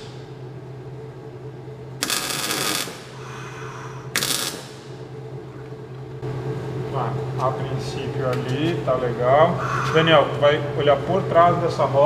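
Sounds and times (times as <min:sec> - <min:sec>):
steady low hum: 0:00.0 - 0:12.0
arc welder bursts: 0:02.0 - 0:05.0.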